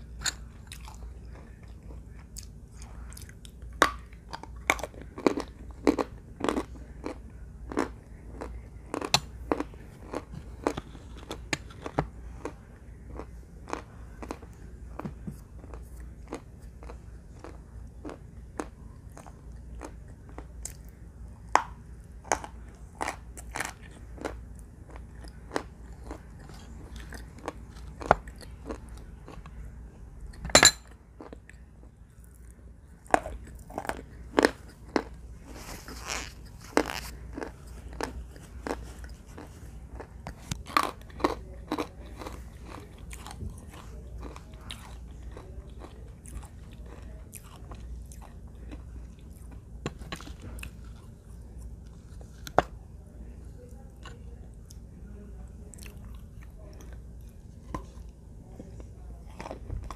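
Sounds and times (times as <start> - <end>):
crunching baked clay: 0.0 - 29.7.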